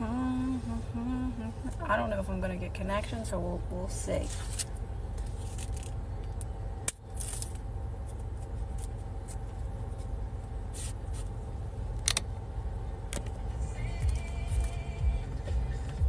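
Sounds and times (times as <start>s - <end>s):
car interior rumble: 0.0s - 16.0s.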